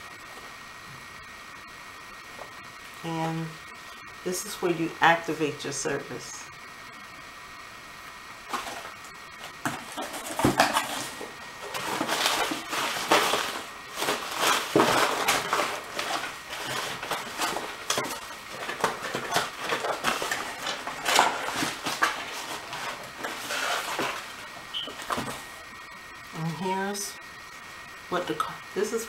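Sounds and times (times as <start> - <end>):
paper rustling: 8.5 - 25.5.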